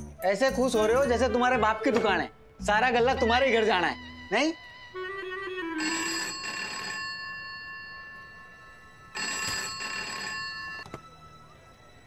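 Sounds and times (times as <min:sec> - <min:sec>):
telephone ringing: 0:05.7 - 0:11.0.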